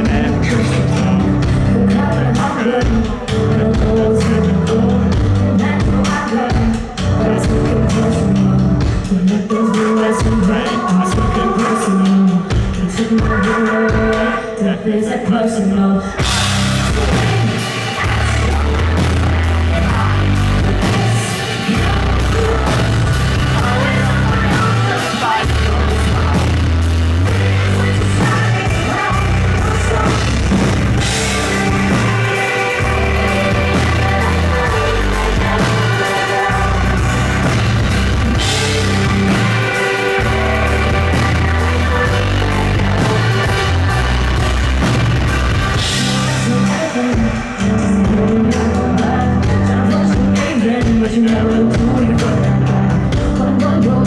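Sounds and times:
live rock band playing: 0.0 - 14.8, 15.8 - 54.0
woman singing: 0.0 - 54.0.

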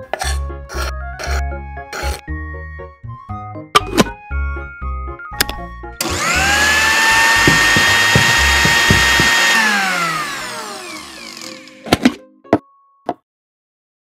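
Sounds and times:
small blender motor whining: 6.0 - 12.1.

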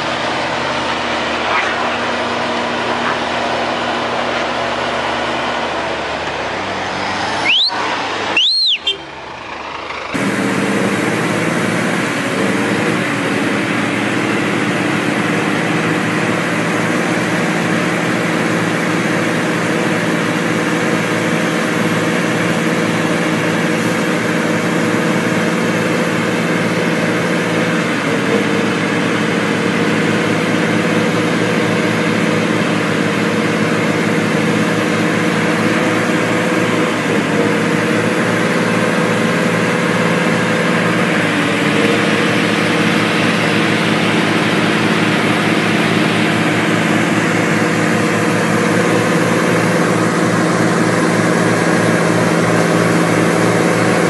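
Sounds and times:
heavy diesel engines running: 0.0 - 54.0.

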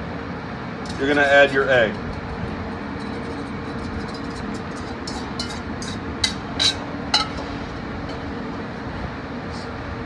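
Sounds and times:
steady background hum: 0.0 - 10.0
whisk clinking against metal bowl: 1.9 - 7.4.

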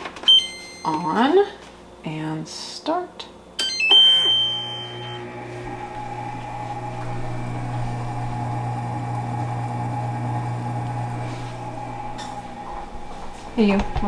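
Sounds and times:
cooking robot motor humming: 4.4 - 14.0.

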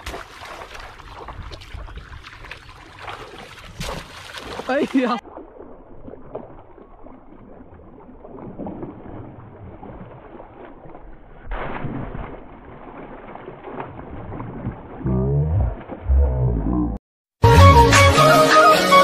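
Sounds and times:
water splashing and sloshing: 0.0 - 16.6
music: 17.4 - 19.0.

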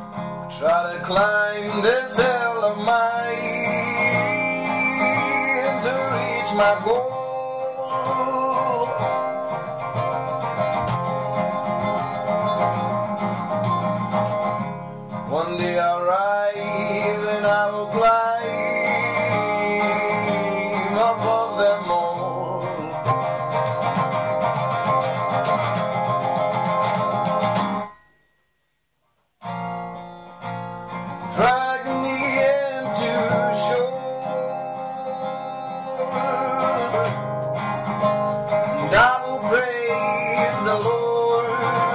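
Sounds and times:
acoustic guitar strumming: 0.0 - 41.9
man singing: 0.4 - 9.6, 15.2 - 23.5, 31.2 - 37.7, 38.5 - 41.9.

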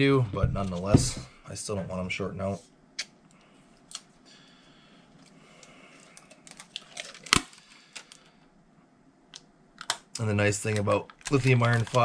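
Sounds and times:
tape tearing from roll: 11.2 - 12.0.

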